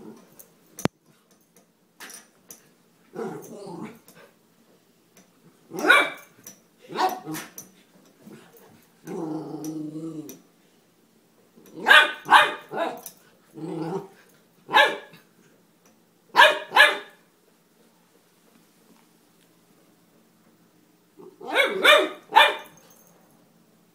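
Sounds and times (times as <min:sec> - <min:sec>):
puppy growling: 0:03.1 - 0:04.2, 0:09.0 - 0:10.4, 0:12.7 - 0:14.2
puppy barking: 0:05.7 - 0:06.3, 0:11.8 - 0:13.0, 0:14.7 - 0:15.1, 0:16.3 - 0:17.2, 0:21.4 - 0:22.8.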